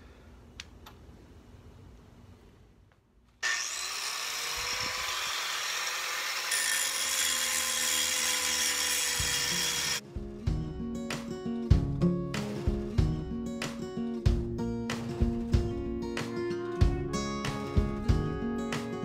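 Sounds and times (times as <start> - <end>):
angle grinder grinding metal: 3.4 - 10.0
acoustic guitar music: 10.0 - 19.0.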